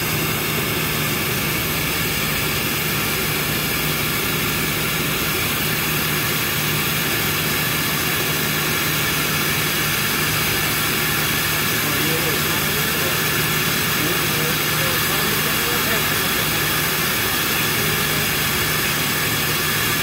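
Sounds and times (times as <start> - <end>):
air hissing into vacuum chamber: 0.0 - 20.0.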